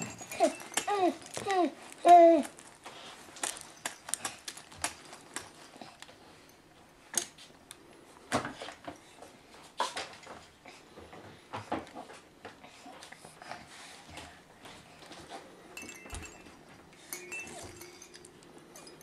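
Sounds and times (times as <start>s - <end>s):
plastic toys clicking and clacking: 0.0s - 6.2s.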